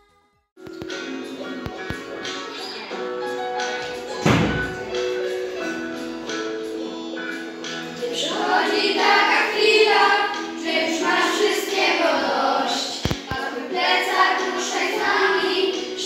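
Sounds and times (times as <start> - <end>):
children singing: 0.9 - 16.0
thumps: 4.2 - 5.0.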